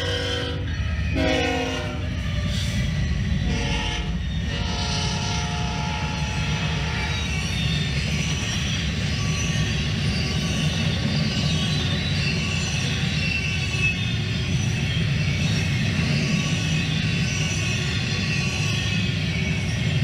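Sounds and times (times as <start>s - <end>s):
steel wheels rumbling on rail: 0.0s - 20.0s
wheels squealing: 0.0s - 20.0s.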